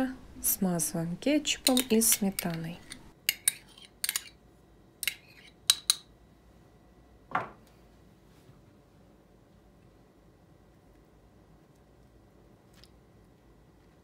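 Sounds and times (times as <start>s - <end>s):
spoon scraping: 1.4s - 4.4s
metal spoon clinking on ceramic: 1.5s - 4.4s.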